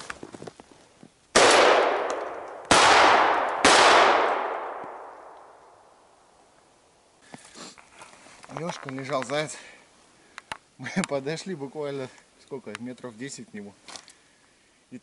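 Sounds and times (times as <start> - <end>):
shotgun shots echoing: 1.4 - 5.6.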